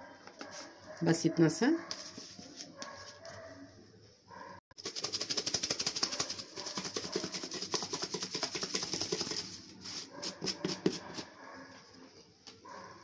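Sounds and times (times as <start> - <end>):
chicken rattling in shaken tub: 4.8 - 9.6.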